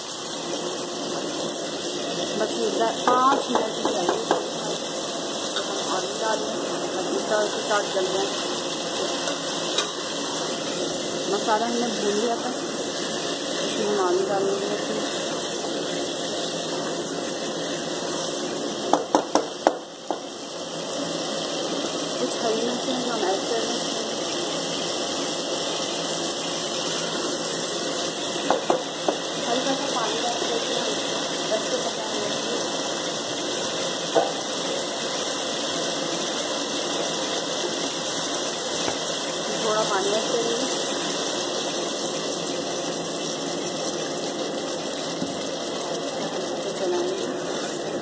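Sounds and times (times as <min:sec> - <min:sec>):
food frying hiss: 0:00.0 - 0:48.0
spoon knocking against pot: 0:03.1 - 0:04.5, 0:18.9 - 0:20.3.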